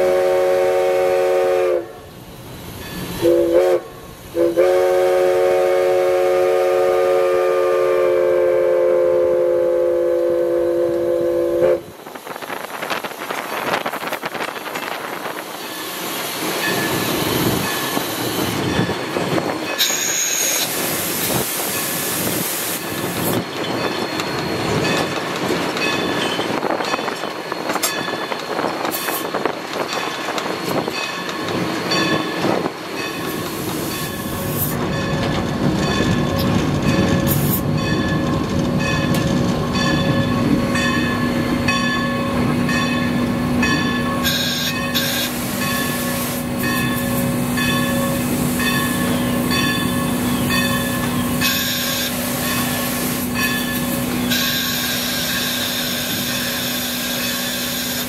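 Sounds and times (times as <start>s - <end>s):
locomotive running gear rumble: 10.9s - 58.0s
short steam hiss: 19.8s - 23.4s.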